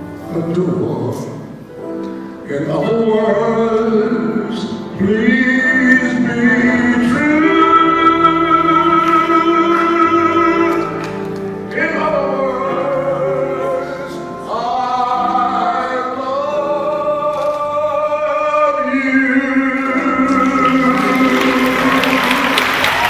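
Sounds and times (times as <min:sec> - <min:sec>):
man singing: 0:02.4 - 0:22.8
audience applauding: 0:20.5 - 0:23.0.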